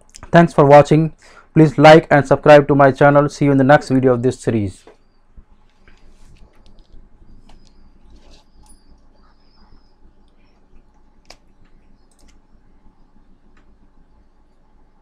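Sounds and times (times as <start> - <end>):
low room hum: 0.0 - 15.0
faint high chirps: 4.9 - 15.0
faint computer mouse clicks: 10.2 - 12.4.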